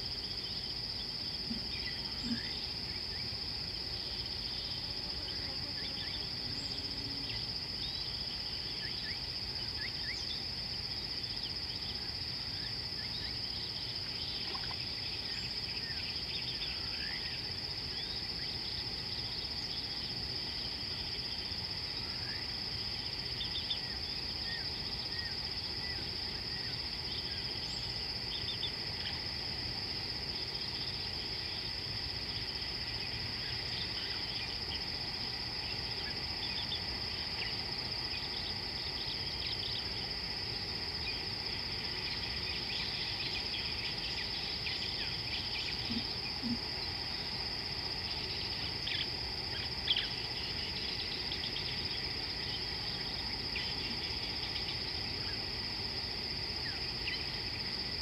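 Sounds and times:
high-pitched insect chorus: 0.0s - 58.0s
short insect chirps: 30.3s - 58.0s.

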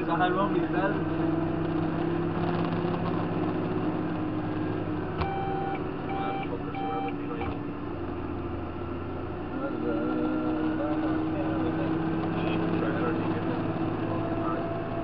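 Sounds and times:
tractor engine drone: 0.0s - 15.0s
short electronic beeps: 5.2s - 7.5s.

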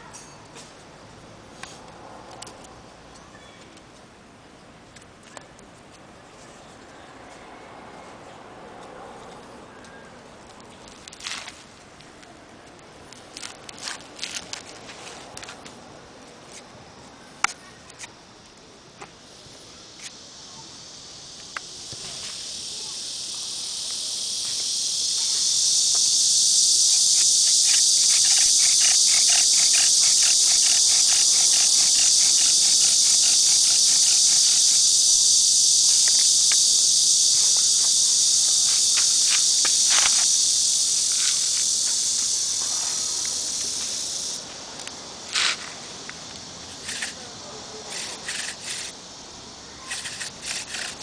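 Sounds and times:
high insect drone: 13.3s - 51.0s.

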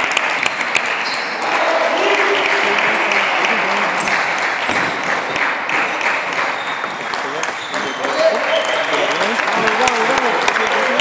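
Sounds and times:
ping pong balls clicking: 0.0s - 1.2s, 2.1s - 8.8s
clatter and hubbub of hall: 0.0s - 11.0s.

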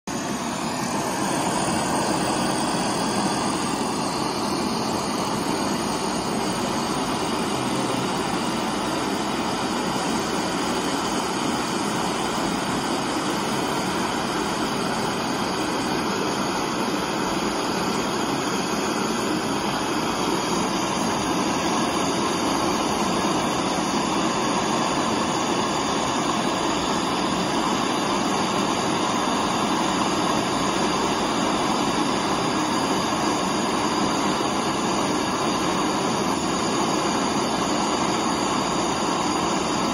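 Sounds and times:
gas torch flame hissing: 0.1s - 39.9s.

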